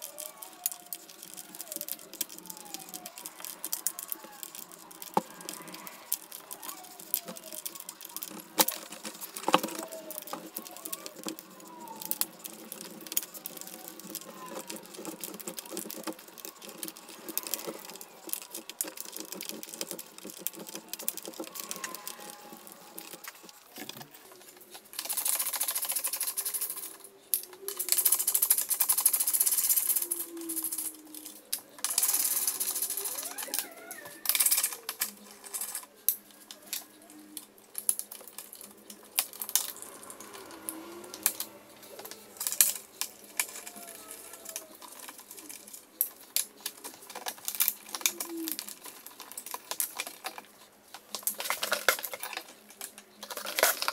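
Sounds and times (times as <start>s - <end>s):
hand tools clicking and rattling: 0.0s - 53.9s.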